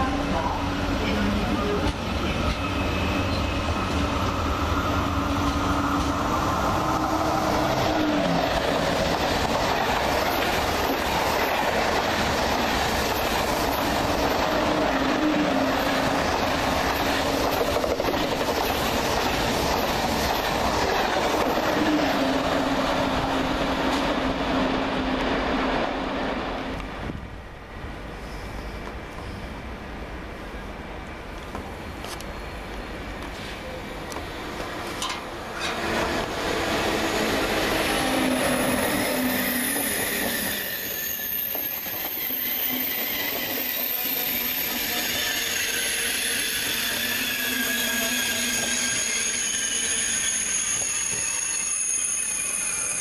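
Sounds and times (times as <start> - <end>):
train rushing past: 0.0 - 30.4, 32.4 - 53.0
clickety-clack of train wheels: 1.0 - 3.5, 5.3 - 6.4, 7.6 - 14.6, 15.8 - 22.0, 31.4 - 36.4, 38.4 - 45.2.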